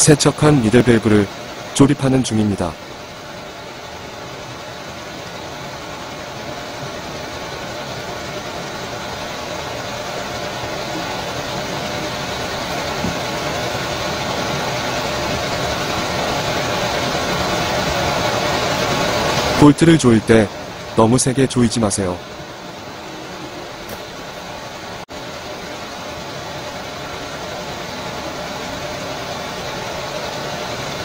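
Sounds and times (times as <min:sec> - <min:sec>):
steady mechanical drone: 0:00.0 - 0:31.0.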